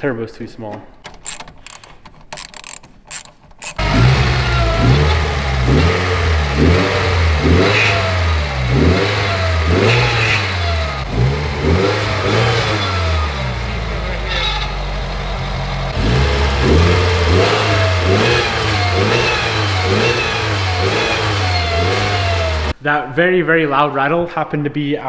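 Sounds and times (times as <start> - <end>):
ratchet clicking: 1.0 - 3.9
car engine revving: 3.7 - 22.8.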